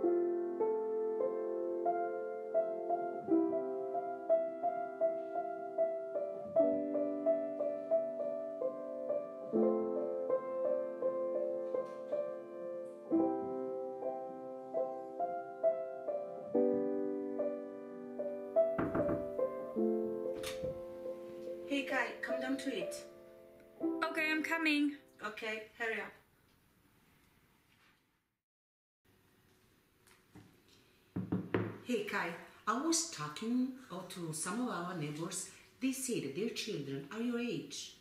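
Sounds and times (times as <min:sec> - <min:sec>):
piano chords with melody: 0:00.0 - 0:24.6.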